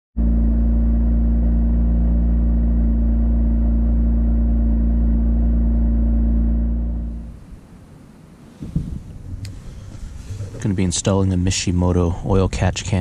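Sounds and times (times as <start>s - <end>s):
car engine idling: 0.2s - 7.6s.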